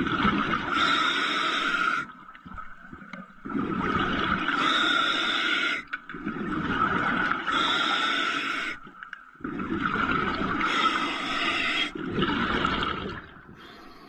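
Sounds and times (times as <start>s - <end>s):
bubbling: 0.0s - 1.0s, 1.6s - 14.0s
diver breathing through regulator: 0.7s - 2.1s, 4.5s - 5.9s, 7.5s - 8.8s, 10.6s - 12.0s.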